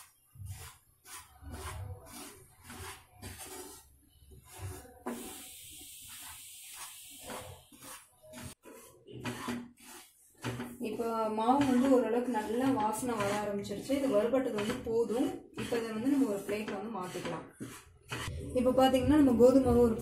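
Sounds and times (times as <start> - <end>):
wooden spatula scraping flour: 0.0 - 20.0.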